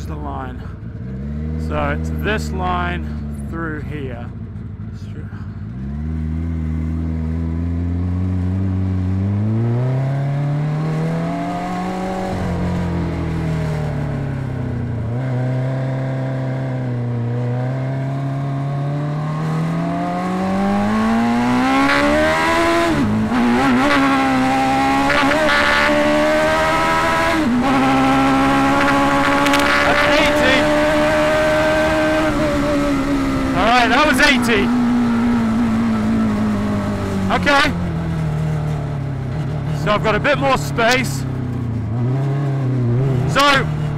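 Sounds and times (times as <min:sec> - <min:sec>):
buggy engine accelerating: 0:00.0 - 0:43.9.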